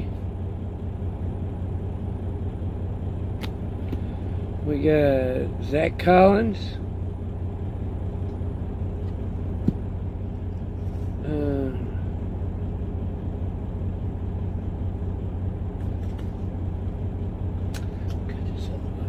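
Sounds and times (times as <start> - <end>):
truck engine idling: 0.0 - 19.0
person humming briefly: 11.2 - 12.1.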